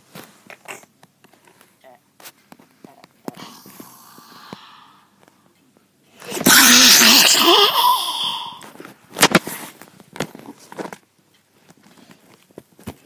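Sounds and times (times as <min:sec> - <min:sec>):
person yelling distortedly: 0:06.3 - 0:08.6.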